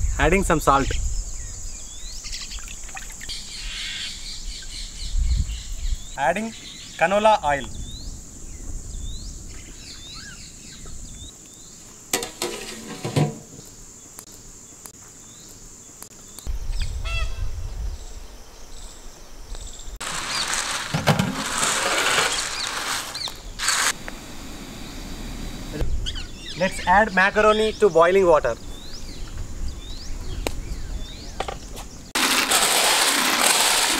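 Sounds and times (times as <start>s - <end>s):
birds chirping: 0.0s - 12.0s, 22.3s - 32.2s
insect drone: 0.0s - 33.9s.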